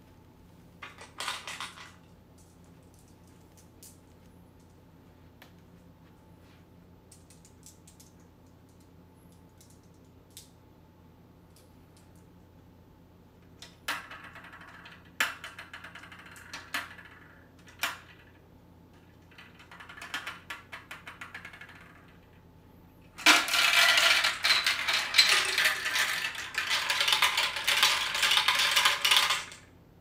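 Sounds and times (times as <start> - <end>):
marbles clattering down plastic track: 0.8 - 2.0, 13.6 - 18.4, 19.2 - 22.3, 23.2 - 29.7.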